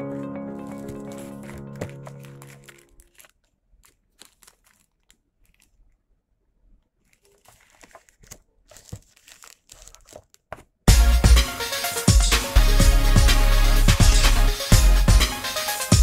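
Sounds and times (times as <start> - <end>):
plastic bag crinkling: 0.7 - 10.8.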